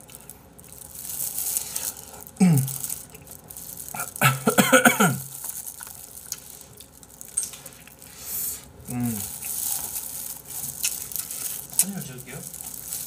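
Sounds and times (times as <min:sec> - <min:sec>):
wet sucking and chewing: 0:00.0 - 0:04.4, 0:05.2 - 0:11.9
man humming with mouth full: 0:02.4 - 0:02.8, 0:08.9 - 0:09.3.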